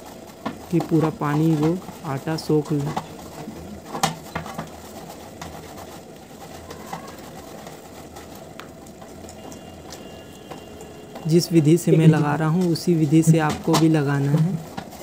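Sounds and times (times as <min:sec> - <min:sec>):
dough being kneaded by hand: 0:00.0 - 0:15.0.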